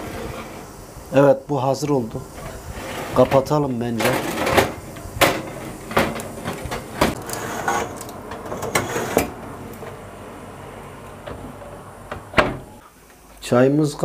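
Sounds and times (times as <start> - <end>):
oven door shutting: 2.4 - 12.8.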